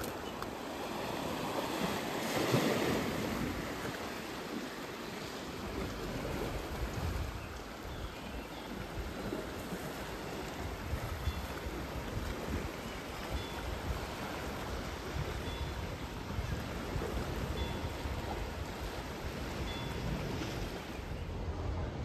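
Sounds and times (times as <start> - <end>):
sea waves washing onto rocks: 0.0 - 7.8
wind gusting on microphone: 5.5 - 22.0.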